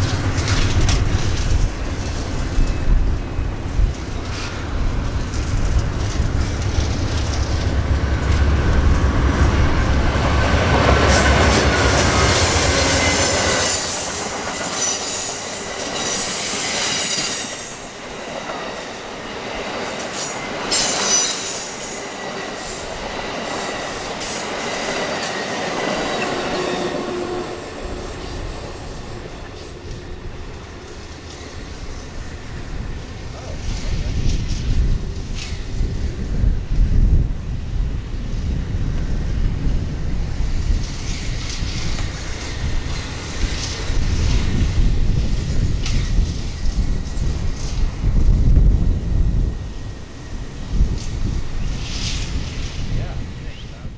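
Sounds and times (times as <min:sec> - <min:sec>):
flange squeal: 0:00.0 - 0:34.2
diesel locomotive engine rumble: 0:00.0 - 0:53.9
train wheel clatter: 0:00.0 - 0:53.9.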